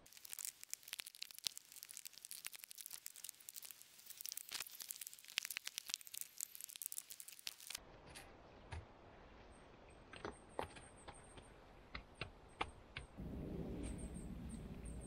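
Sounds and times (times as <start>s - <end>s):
plastic tarp crackling: 0.0s - 7.8s.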